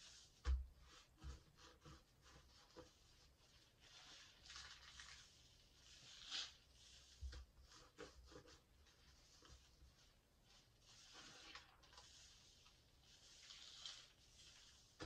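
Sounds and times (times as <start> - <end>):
soap foam squishing and crackling: 0.0 - 15.0.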